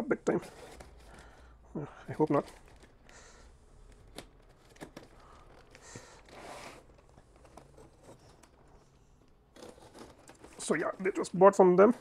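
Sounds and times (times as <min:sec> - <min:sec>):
cardboard and tape tearing: 0:09.5 - 0:10.8.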